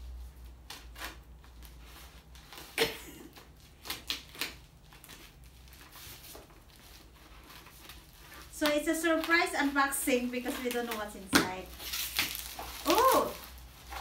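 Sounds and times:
plastic wrapping crinkling: 0.7 - 14.0
scissors cutting plastic mailer: 10.4 - 14.0.

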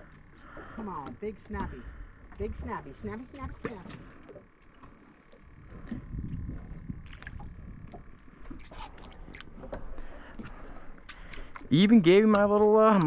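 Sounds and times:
water lapping against boat hull: 0.0 - 13.0
low rumble: 5.4 - 8.5.

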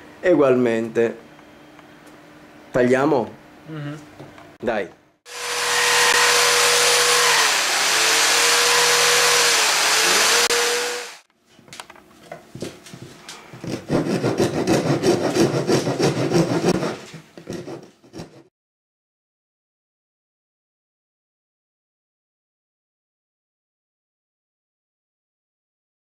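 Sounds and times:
hand file rasping wood: 5.3 - 11.2, 13.6 - 18.5
electric saw cutting wood: 5.3 - 11.3.

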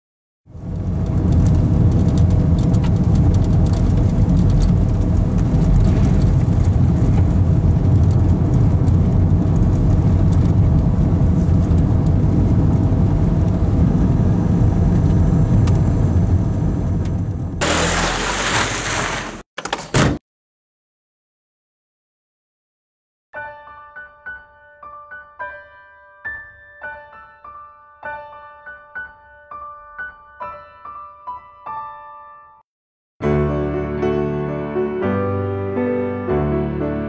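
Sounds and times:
car engine and road noise: 0.5 - 19.5.

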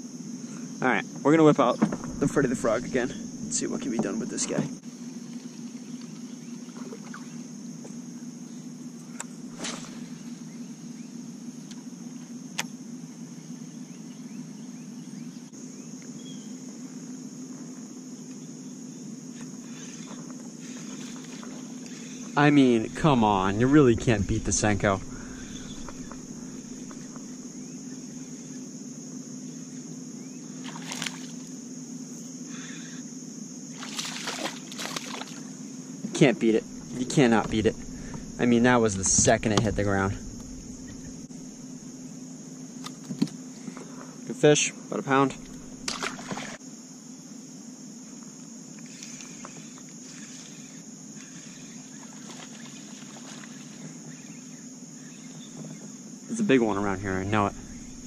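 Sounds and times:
high insect drone: 0.0 - 58.0
low steady hum: 1.8 - 15.4, 20.7 - 32.9, 34.0 - 44.0, 45.0 - 46.6, 56.3 - 58.0
low hum: 1.9 - 4.5, 22.4 - 28.3, 36.4 - 42.2, 45.2 - 46.4, 56.6 - 58.0
water splashing: 22.5 - 27.2, 33.8 - 35.4, 45.3 - 46.6.

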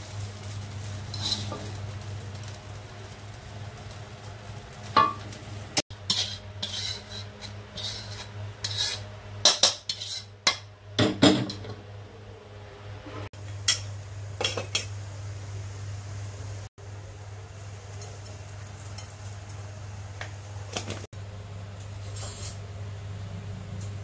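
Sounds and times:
metal spatula scraping wok: 0.3 - 2.6, 5.9 - 10.6, 22.0 - 22.6.

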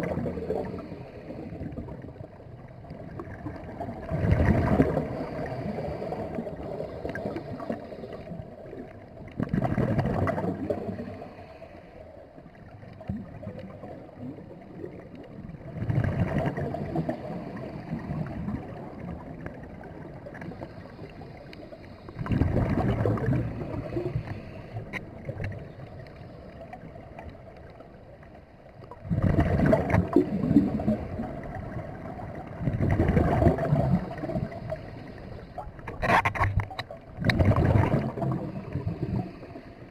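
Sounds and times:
underwater exhaled air bubbling: 0.0 - 39.9
faint regulator hiss: 4.8 - 9.2, 17.0 - 22.5, 23.3 - 28.9, 34.0 - 36.9.

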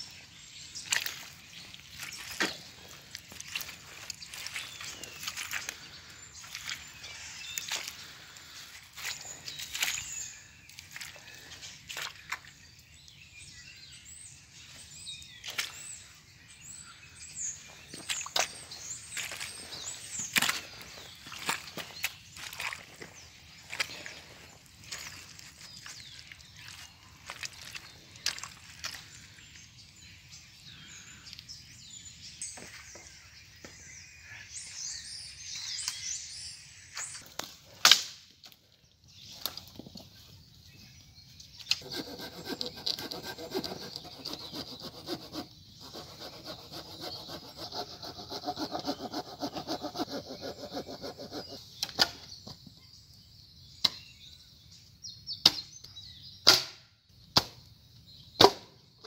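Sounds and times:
hand saw cutting branch: 41.7 - 52.2.

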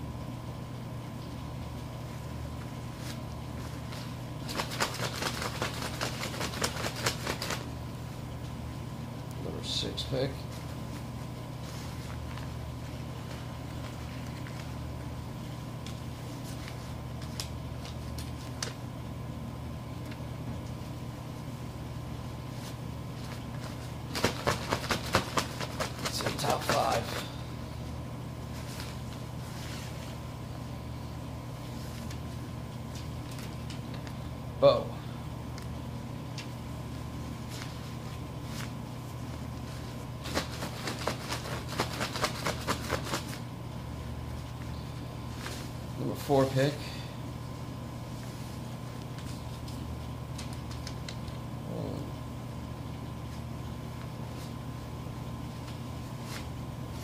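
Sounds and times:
low room hum: 0.0 - 57.0
paper cards rustling in cloth bag: 22.5 - 27.3, 31.6 - 34.2.

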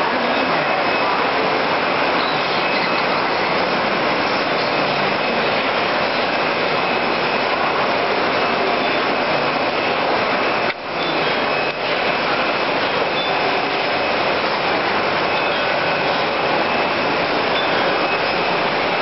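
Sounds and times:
binding machine clatter and whir: 0.0 - 19.0.

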